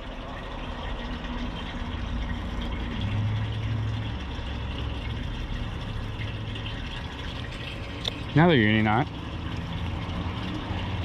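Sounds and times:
water running under boat: 0.0s - 11.0s.

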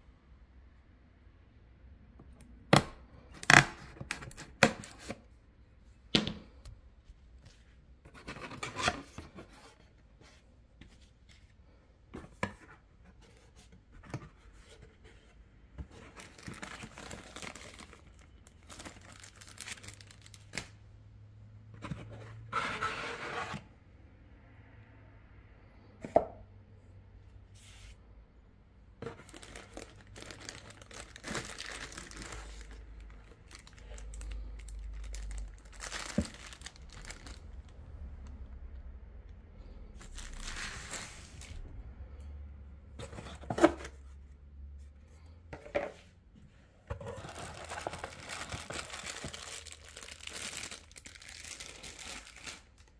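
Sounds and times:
cardboard tearing and rustling: 16.1s - 20.6s, 29.1s - 32.9s, 33.5s - 37.4s, 47.0s - 52.8s.

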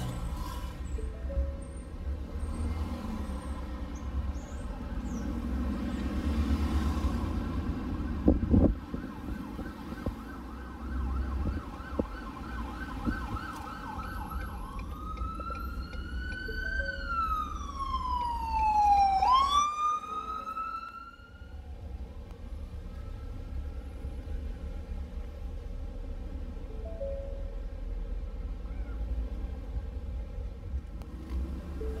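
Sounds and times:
road noise: 0.0s - 32.0s
truck engine rumble: 0.0s - 32.0s
emergency vehicle siren: 6.8s - 24.6s.

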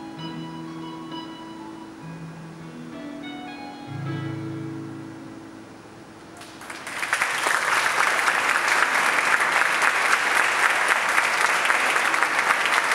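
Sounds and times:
audience applause: 6.4s - 12.9s.

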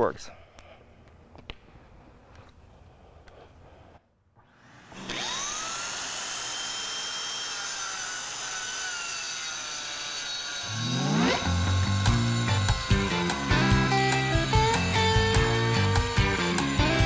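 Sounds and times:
vacuum motor whining: 4.4s - 17.0s
deep rising-pitch sound: 10.7s - 15.3s.

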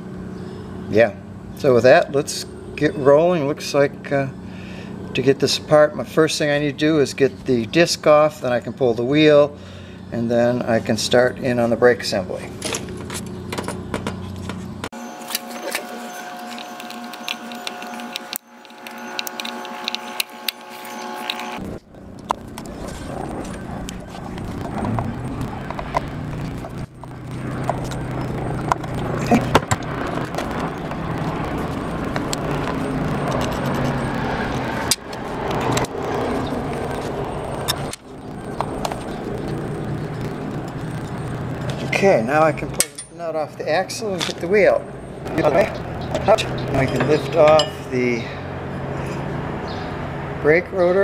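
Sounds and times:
helicopter engine noise: 0.0s - 7.6s, 11.1s - 50.5s.

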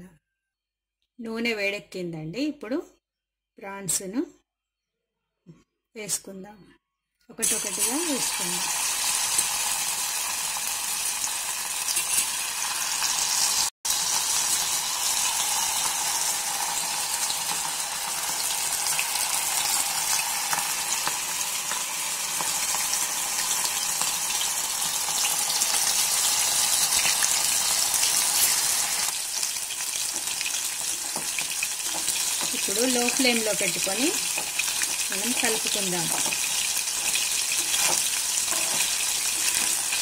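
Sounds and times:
prawns sizzling in hot oil: 7.4s - 40.0s.

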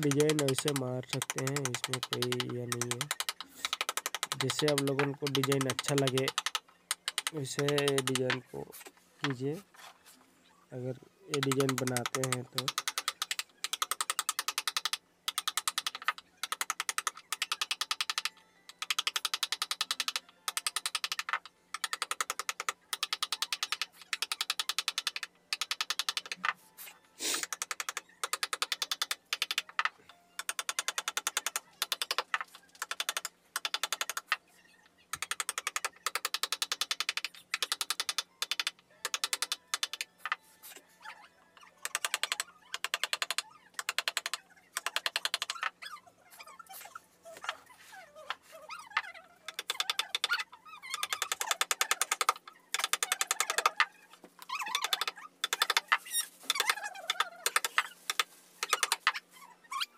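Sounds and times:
hammer tapping chisel handle: 0.0s - 8.5s, 54.5s - 59.2s.

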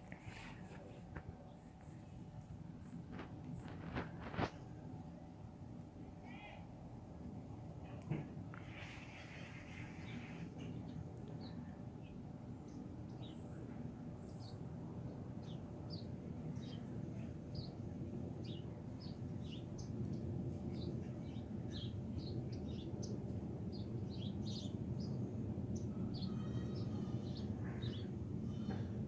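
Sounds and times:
distant jet airliner rumble: 0.0s - 29.0s
small birds chirping: 8.5s - 17.8s, 18.4s - 29.0s.

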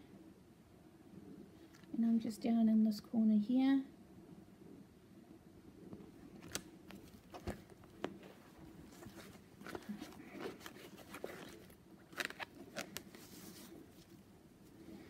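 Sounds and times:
plastic sleeve rustling: 6.3s - 15.0s.

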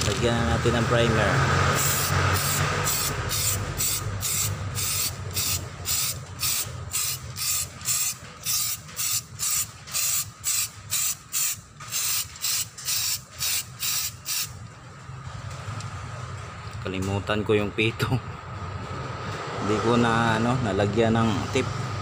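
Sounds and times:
spray can hissing in bursts: 1.7s - 14.6s.

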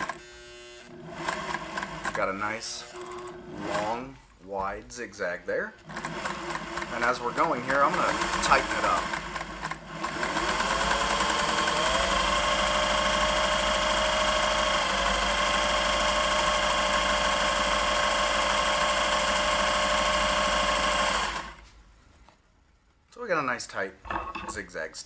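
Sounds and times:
sewing machine running: 0.0s - 4.0s, 5.8s - 21.6s.

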